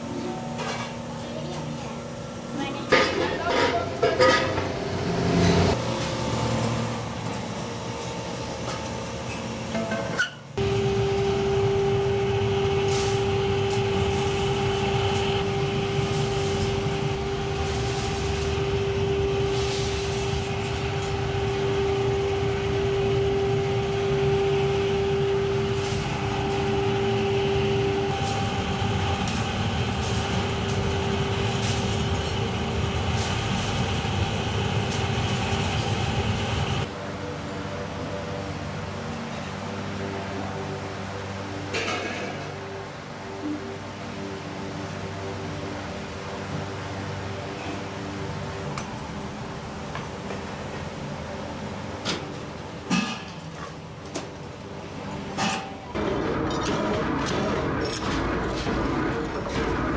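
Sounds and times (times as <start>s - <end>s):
furnace air blower humming: 0.0s - 59.9s
scrap metal clanking: 2.9s - 4.7s.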